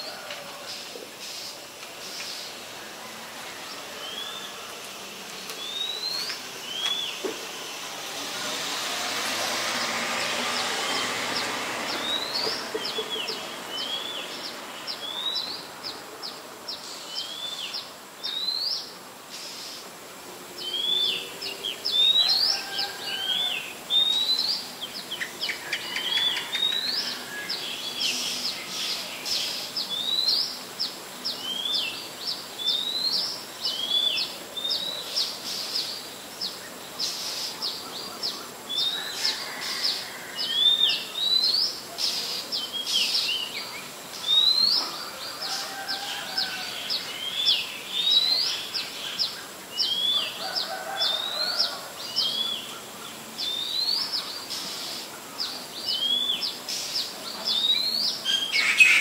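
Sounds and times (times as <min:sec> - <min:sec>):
soft rushing noise: 0:00.0 - 0:16.9
small birds chirping: 0:03.6 - 0:19.9, 0:20.6 - 0:59.0.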